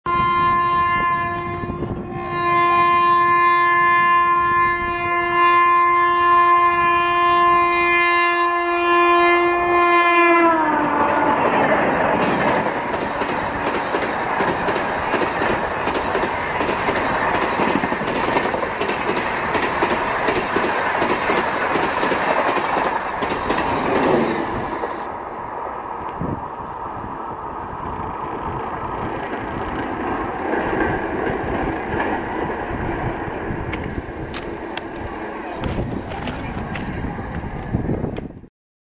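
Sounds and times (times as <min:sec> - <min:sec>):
locomotive horn blasts: 0:00.1 - 0:11.4
train coaches rumbling past: 0:00.1 - 0:38.4
wheel clatter over rail joints: 0:10.8 - 0:25.0.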